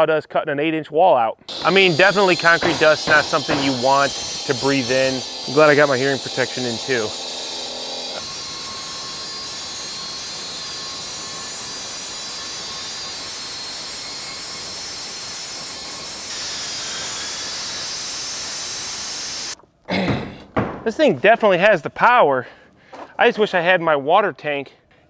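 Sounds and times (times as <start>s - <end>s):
saw cutting concrete: 1.5s - 19.6s.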